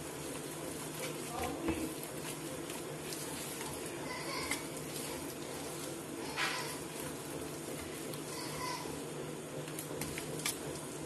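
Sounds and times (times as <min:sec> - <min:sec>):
hand squelching wet paste: 0:00.0 - 0:08.5.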